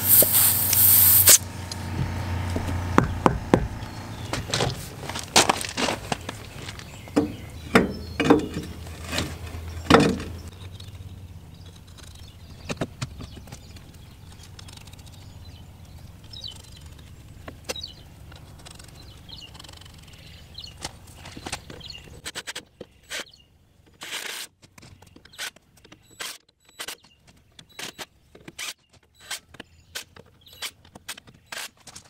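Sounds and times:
tyre knocks and crunches on gravel: 2.0s - 7.4s.

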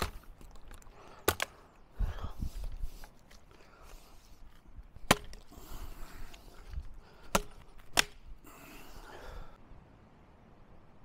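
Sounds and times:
twigs rustling: 0.0s - 9.4s
machete chopping wooden branch: 1.2s - 1.5s, 5.0s - 5.5s, 6.2s - 8.3s.

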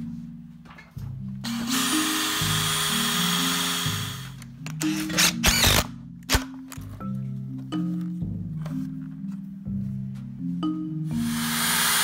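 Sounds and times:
marimba background music: 0.0s - 12.0s
cordless drill drilling: 1.5s - 5.9s, 11.2s - 12.0s.

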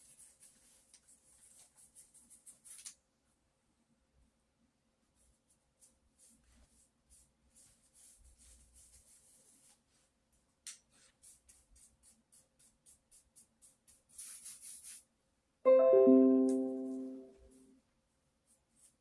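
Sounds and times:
paintbrush scratching on paper: 5.2s - 10.2s, 10.9s - 15.1s
loud piano-like chord: 15.7s - 17.4s.

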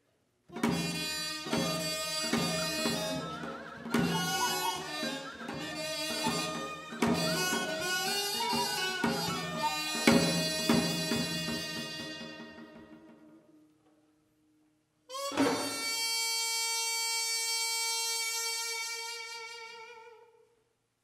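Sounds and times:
sharp drum strokes: 0.5s - 13.4s
reedy wind instrument melody: 0.5s - 13.6s, 15.1s - 20.5s.

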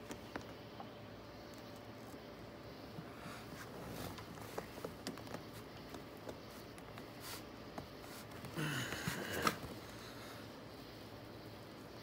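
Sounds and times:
scrape and rustle: 6.5s - 8.4s.

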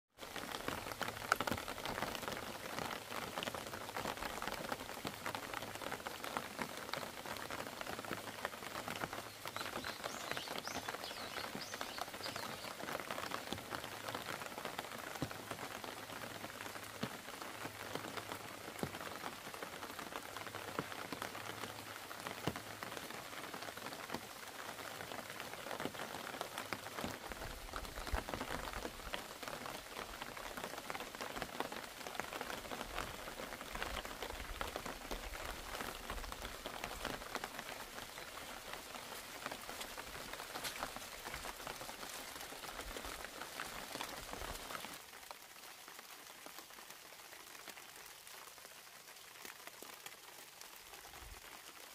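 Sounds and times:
steady rain falling: 0.1s - 51.9s.

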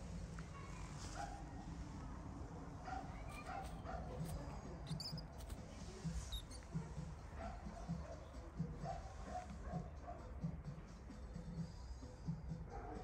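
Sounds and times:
high squeaks: 3.3s - 6.8s.

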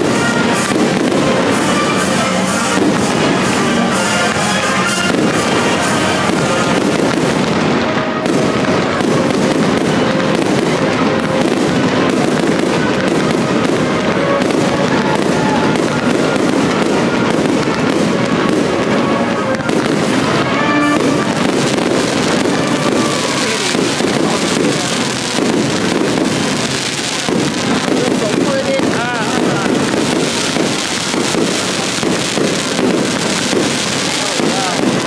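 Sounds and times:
fireworks bursting and crackling: 0.0s - 35.0s
music playing: 0.0s - 35.0s.

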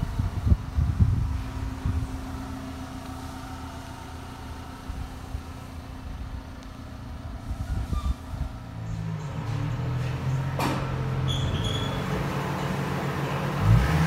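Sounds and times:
wind buffeting microphone: 0.0s - 2.8s, 4.7s - 9.2s
vehicle engine idling: 0.0s - 14.0s.

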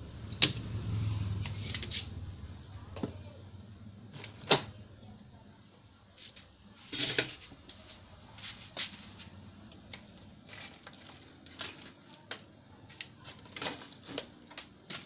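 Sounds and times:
hand tools clicking and scraping: 1.4s - 2.1s.

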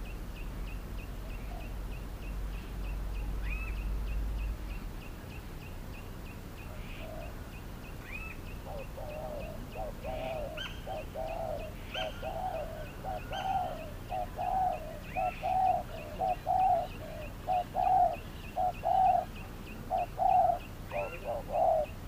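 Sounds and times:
small birds chirping: 0.0s - 22.0s
dove cooing: 6.7s - 22.0s.

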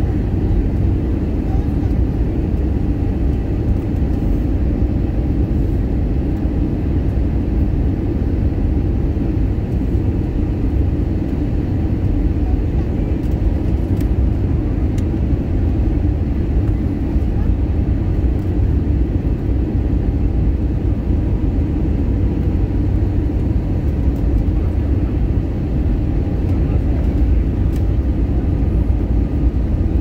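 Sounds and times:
airplane cabin roar: 0.0s - 30.0s.

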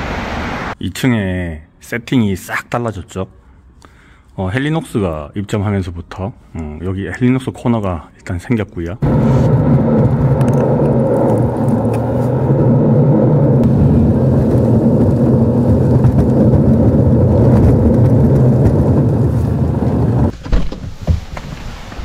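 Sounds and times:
car engine and road noise: 0.0s - 0.8s, 9.0s - 22.0s.

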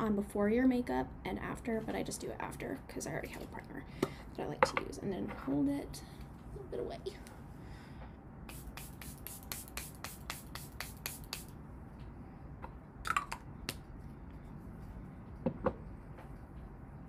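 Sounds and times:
spray bottle misting: 8.5s - 11.6s.

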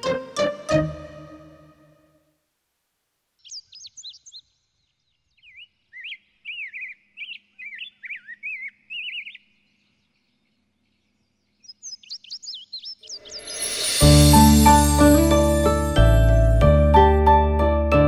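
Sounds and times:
small songbirds chirping: 3.4s - 15.8s.

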